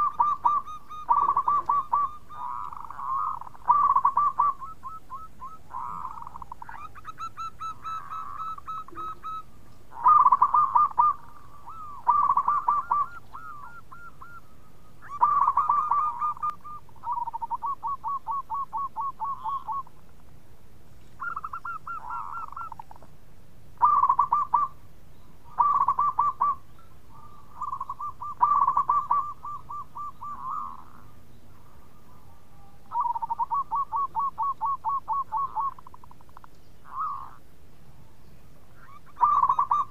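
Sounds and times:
dove cooing: 0:00.0 - 0:20.0, 0:21.2 - 0:23.2, 0:23.8 - 0:24.8, 0:25.4 - 0:37.4, 0:38.8 - 0:39.9.

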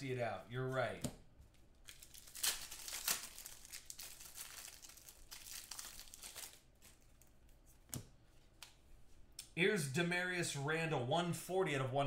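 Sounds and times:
foil wrapper crinkling: 0:01.8 - 0:07.6.

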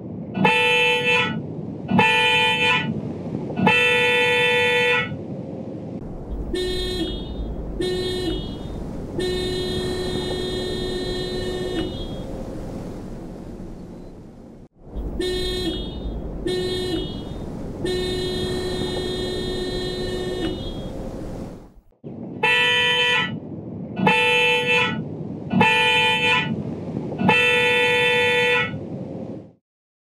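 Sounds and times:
car horn toots: 0:00.4 - 0:02.9, 0:03.6 - 0:05.1, 0:06.2 - 0:13.8, 0:15.0 - 0:21.7, 0:22.4 - 0:23.4, 0:24.0 - 0:26.6, 0:27.2 - 0:28.8
high dual-tone horn toots: 0:00.4 - 0:02.9, 0:03.6 - 0:05.1, 0:06.1 - 0:13.8, 0:14.9 - 0:21.8, 0:22.4 - 0:23.3, 0:24.0 - 0:26.6, 0:27.2 - 0:28.8.

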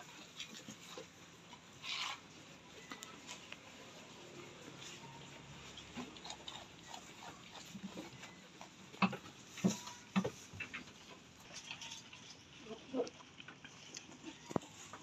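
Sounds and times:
goats snuffling: 0:00.0 - 0:11.6
goats chewing: 0:00.0 - 0:15.0.

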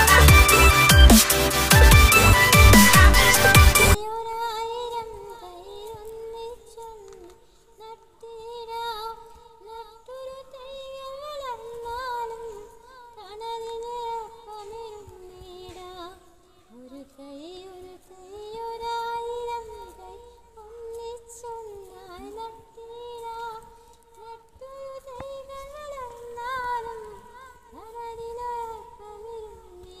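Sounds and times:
woman singing in a high voice: 0:01.7 - 0:30.0.

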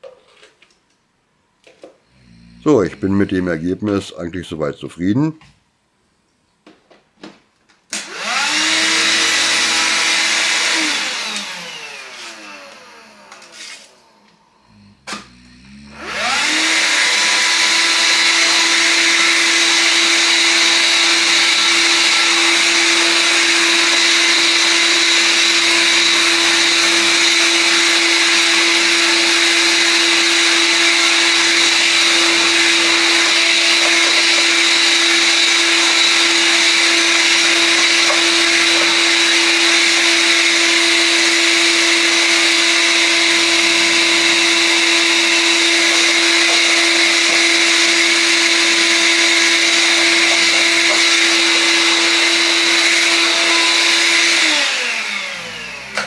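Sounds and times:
handheld vacuum cleaner running: 0:07.9 - 0:56.0.

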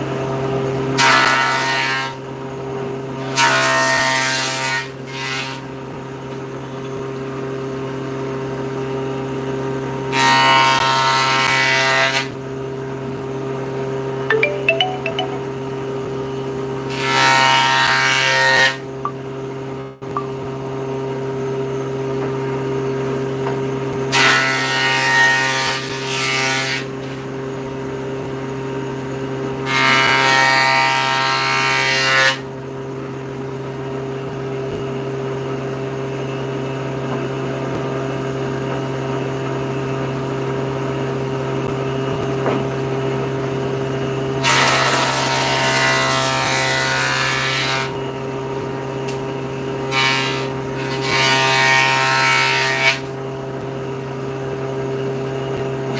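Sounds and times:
saw blade cutting boards: 0:49.9 - 0:53.2.

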